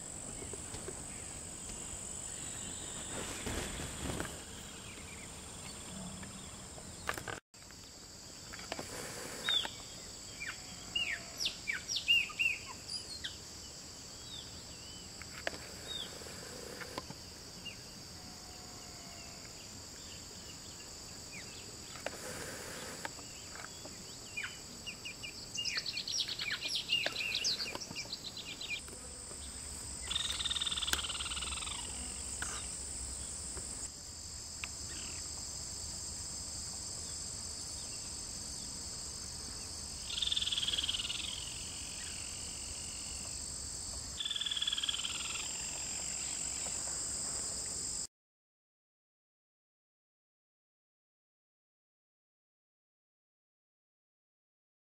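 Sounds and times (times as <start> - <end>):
high-pitched insect chorus: 0.0 - 48.1
bird calls: 22.7 - 33.4.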